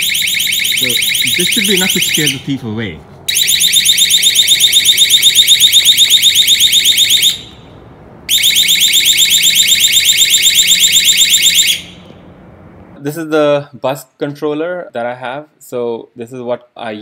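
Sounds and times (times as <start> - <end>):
alarm siren warbling: 0.0 - 2.6, 3.3 - 7.7, 8.3 - 12.1.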